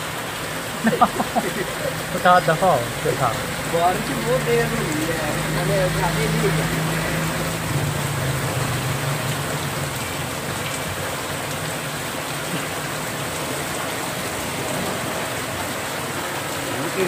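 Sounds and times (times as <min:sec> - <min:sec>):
heavy rain on wet street: 0:00.0 - 0:17.0
passing vehicle engine hum: 0:02.0 - 0:11.8.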